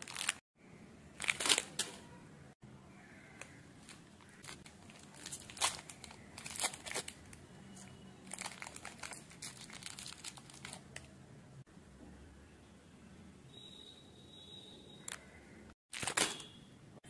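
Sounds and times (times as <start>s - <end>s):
plastic candy wrappers crinkling: 0.0s - 0.4s, 1.2s - 2.0s, 3.4s - 11.1s, 15.9s - 16.4s.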